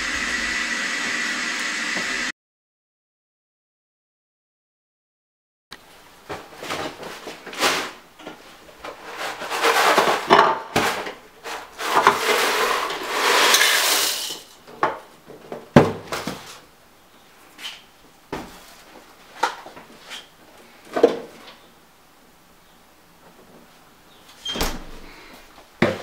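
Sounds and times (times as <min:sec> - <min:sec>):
cereal pouring into bowl: 0:12.3 - 0:14.5.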